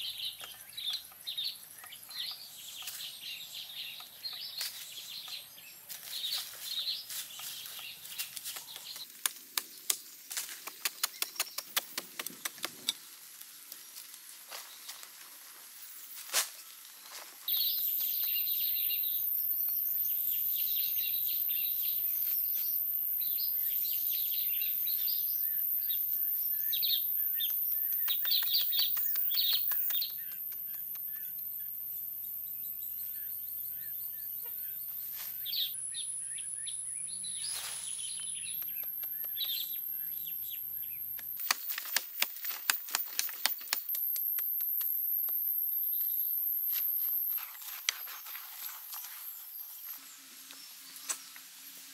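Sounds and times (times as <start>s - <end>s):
birds chirping: 0.0s - 9.1s, 23.2s - 44.8s
steady high-pitched whine: 17.1s - 42.0s
digging blade knocking soil: 41.1s - 44.8s.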